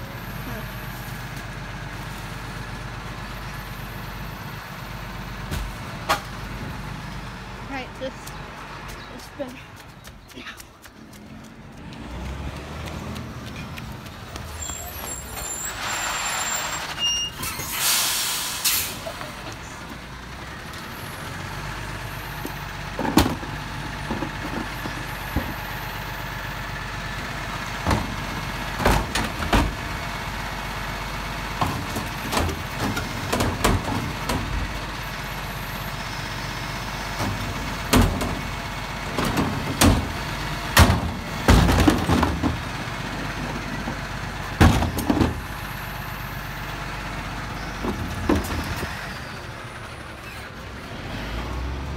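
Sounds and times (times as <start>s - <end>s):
truck engine running: 0.0s - 51.9s
air hiss: 17.6s - 19.0s
bins clanking and thudding: 22.9s - 25.6s, 27.8s - 29.9s, 31.5s - 34.7s, 37.2s - 44.0s, 44.6s - 45.5s, 47.8s - 48.9s.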